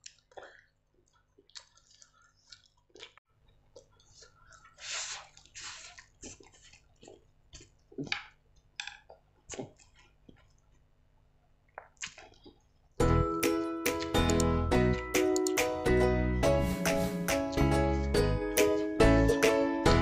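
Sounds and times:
wet chewing and mouth clicks: 0:00.0 - 0:10.9, 0:11.6 - 0:13.0
slurping noodles: 0:03.8 - 0:07.3, 0:16.4 - 0:17.7.

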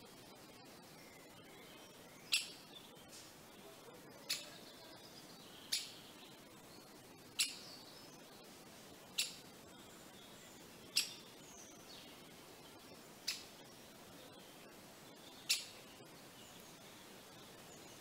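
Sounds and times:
woodpecker calling: 0:02.2 - 0:02.9, 0:04.2 - 0:04.6, 0:05.5 - 0:06.1, 0:07.3 - 0:07.8, 0:09.1 - 0:09.8, 0:10.8 - 0:11.4, 0:13.2 - 0:13.6, 0:15.3 - 0:16.0.

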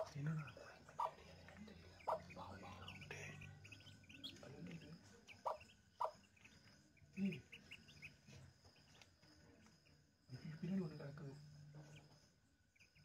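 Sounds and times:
ducklings peeping: 0:00.0 - 0:01.2, 0:01.9 - 0:09.0, 0:12.7 - 0:13.0.

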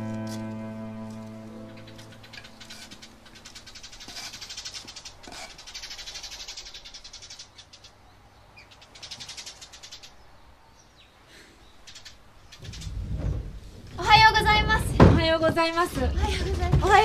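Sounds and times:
rapid high-pitched chirps: 0:01.7 - 0:07.9.

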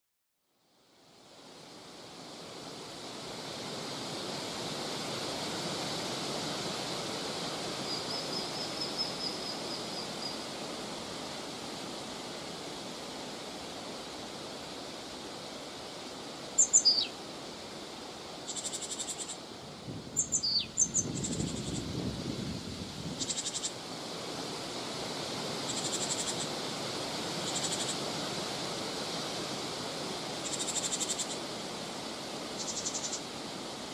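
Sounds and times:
steady wind: 0:00.7 - 0:33.9
songbird calls: 0:16.6 - 0:17.2, 0:18.4 - 0:19.4, 0:20.2 - 0:21.9, 0:23.2 - 0:23.8, 0:25.6 - 0:26.5, 0:27.4 - 0:28.0, 0:30.4 - 0:31.4, 0:32.5 - 0:33.3.

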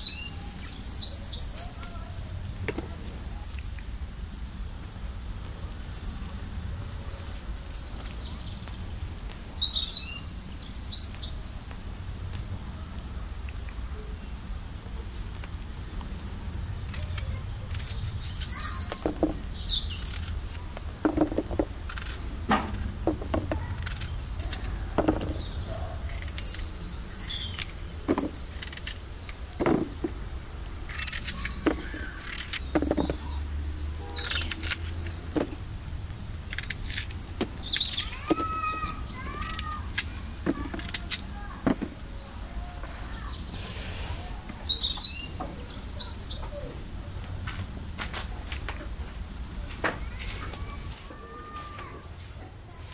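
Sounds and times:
small birds chirping: 0:00.0 - 0:52.9
knife cutting apples: 0:30.9 - 0:33.2.

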